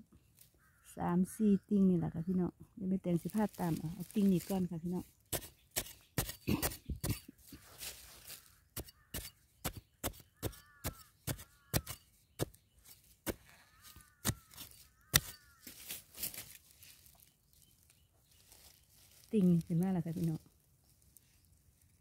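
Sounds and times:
digging tool striking dry soil: 3.3 - 16.6.

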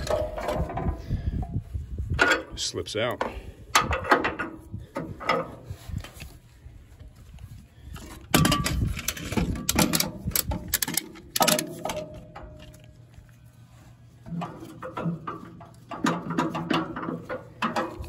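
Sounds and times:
metal knocks and clatter: 0.0 - 1.0, 8.2 - 12.8, 14.3 - 18.0.

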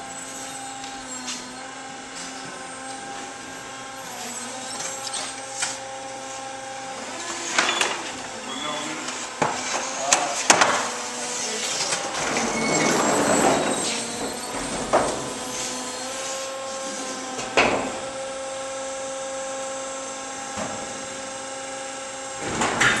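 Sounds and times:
electric forklift motor whine: 0.0 - 23.0
wooden pallet scraping on concrete: 9.0 - 17.3.

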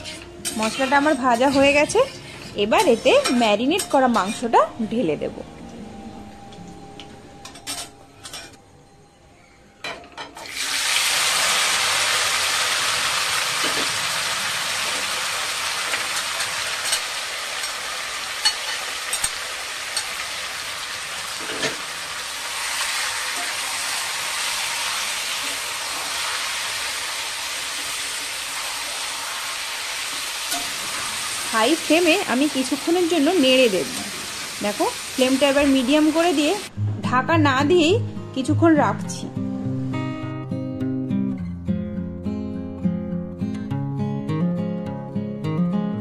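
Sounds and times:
meat sizzling in oil: 10.4 - 36.7.

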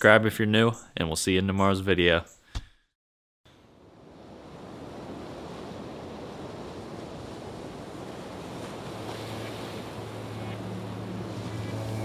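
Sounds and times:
steady rushing noise: 8.1 - 12.0
low steady hum: 8.8 - 12.0.

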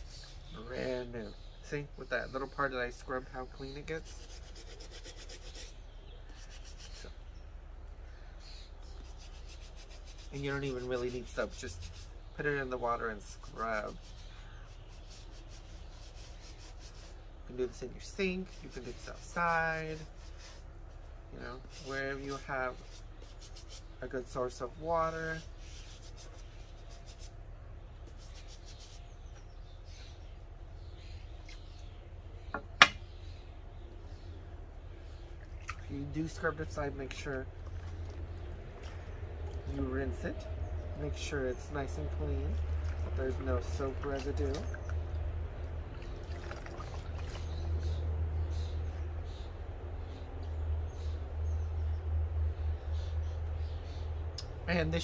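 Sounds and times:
low steady hum: 0.0 - 55.0
brush scrubbing a sneaker: 4.0 - 7.1, 9.0 - 12.2, 13.1 - 24.0, 25.4 - 27.3, 28.0 - 29.0
sharp knocks: 32.5 - 33.0.

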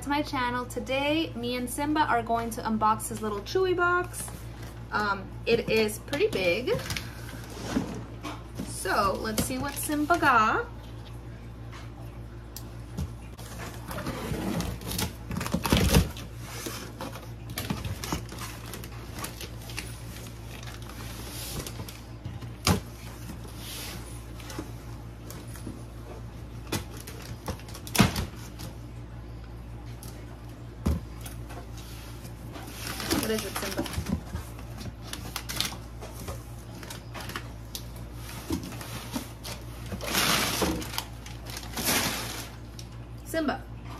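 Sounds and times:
cardboard and paper rustling: 3.1 - 10.4, 13.2 - 28.8, 30.8 - 43.0.

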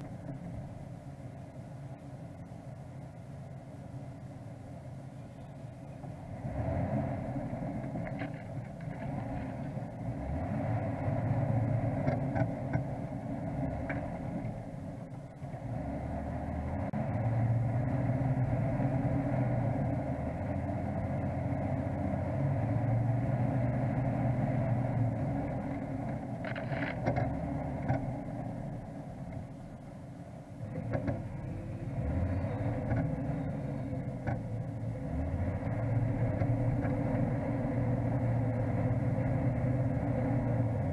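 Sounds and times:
vehicle engine running: 0.0 - 40.9.

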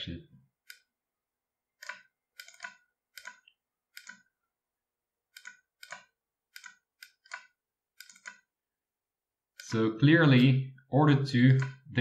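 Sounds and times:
computer mouse clicks: 0.6 - 0.9, 1.8 - 4.3, 5.3 - 8.5, 11.5 - 11.8.

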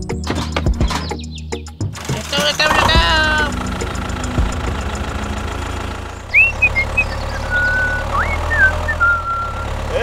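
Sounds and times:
low engine drone: 2.0 - 10.0
high whistled notes: 6.3 - 9.7.

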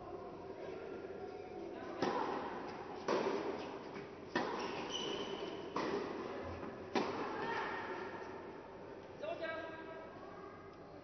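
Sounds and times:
tennis ball hit by rackets: 3.0 - 7.7.

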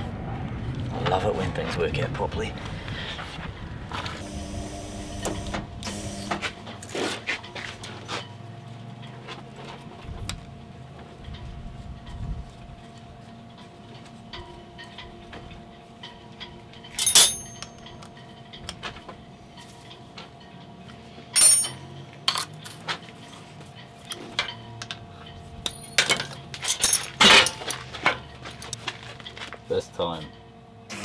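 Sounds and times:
faint steady hum: 2.2 - 6.8
metal tools clinking: 16.0 - 18.8, 21.3 - 29.6.

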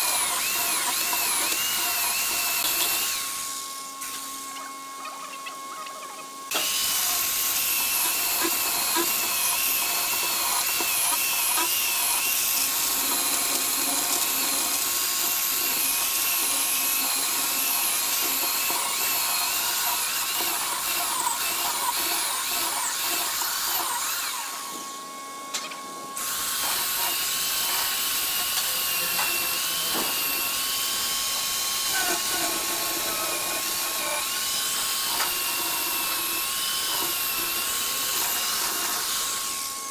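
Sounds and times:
electric chainsaw cutting wood: 0.0 - 39.9.

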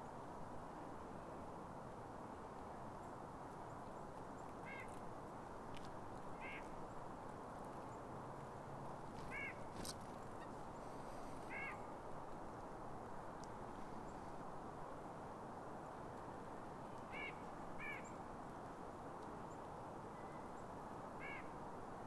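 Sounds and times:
bird calls: 9.2 - 11.8.

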